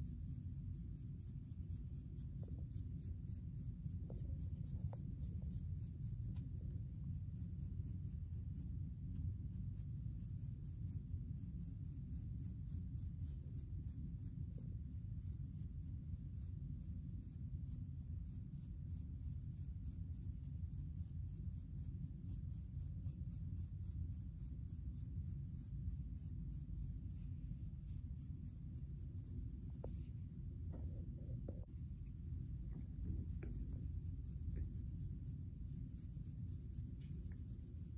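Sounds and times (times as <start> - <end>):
comb scratching through hair: 15.4 - 30.2, 31.7 - 37.9
low rumble: 26.9 - 36.2.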